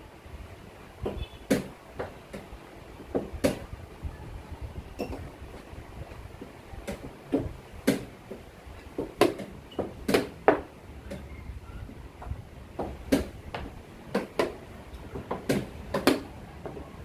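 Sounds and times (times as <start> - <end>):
chess pieces knocking on board: 6.8 - 11.2, 12.8 - 16.8.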